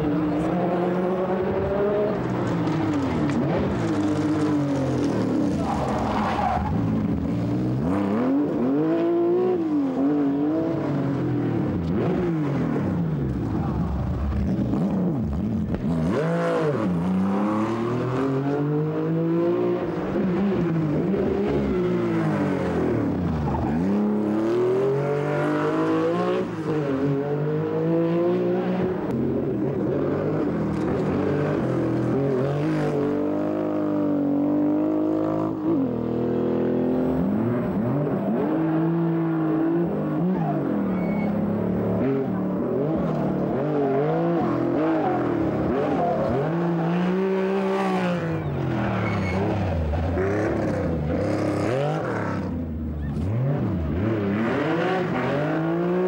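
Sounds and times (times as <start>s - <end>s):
rally car engine revving: 0.0s - 56.0s.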